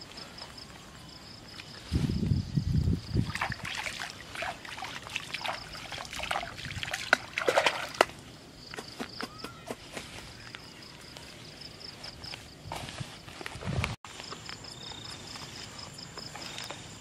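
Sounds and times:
hands splashing in shallow water: 3.2 - 8.2.

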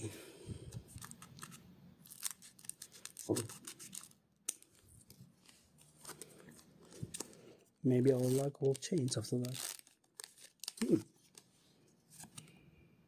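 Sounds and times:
foil crinkling: 1.0 - 4.8, 8.0 - 11.4.

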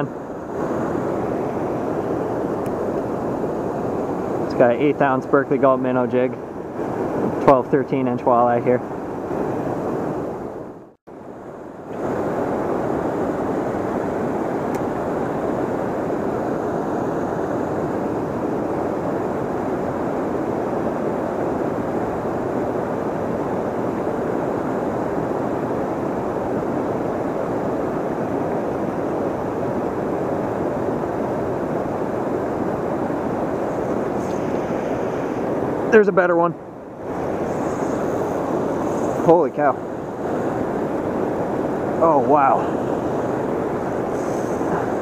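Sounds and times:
turbulent river water rushing: 11.9 - 45.0.

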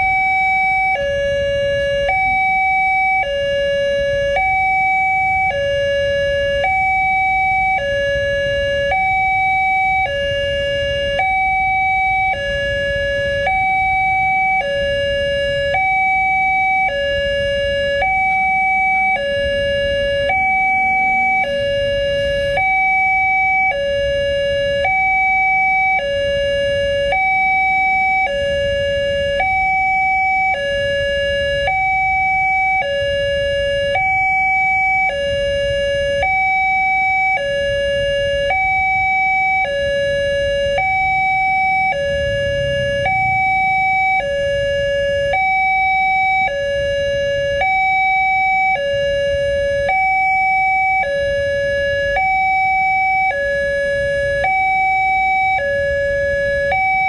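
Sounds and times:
low road rumble: 0.0 - 57.0
two-tone level crossing alarm: 0.0 - 57.0.

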